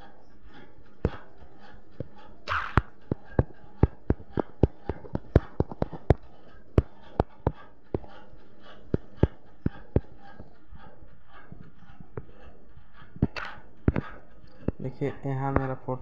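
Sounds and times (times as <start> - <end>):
fingertips tapping touchscreen: 13.1 - 14.8.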